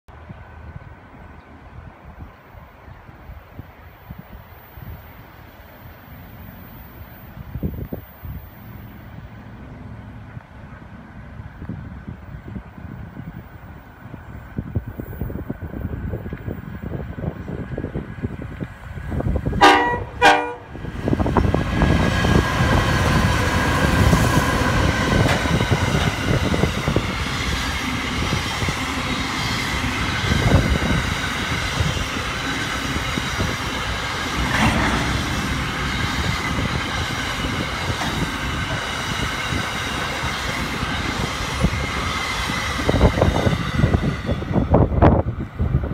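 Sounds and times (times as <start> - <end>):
diesel locomotive passing: 0.1 - 45.9
train horn blasts: 19.6 - 20.8
train wheels clattering on rails: 21.0 - 45.1.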